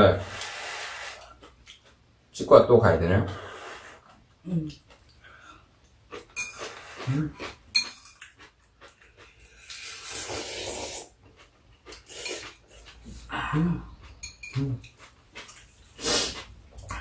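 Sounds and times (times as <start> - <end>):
noodle slurping: 9.2 - 13.0, 14.8 - 17.0.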